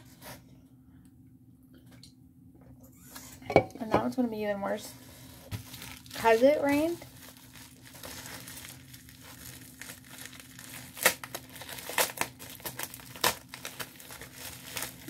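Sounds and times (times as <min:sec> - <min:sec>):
packaging crinkling: 0:05.5 - 0:15.0.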